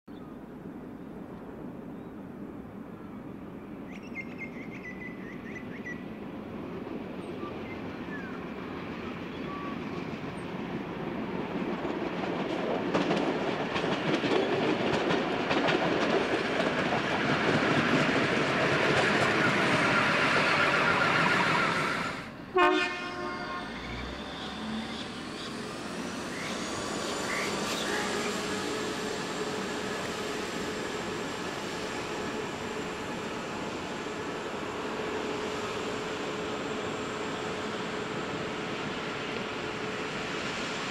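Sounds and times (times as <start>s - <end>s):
diesel railcar engine passing: 4.6s - 40.9s
train horn: 22.5s - 24.1s, 27.7s - 29.2s.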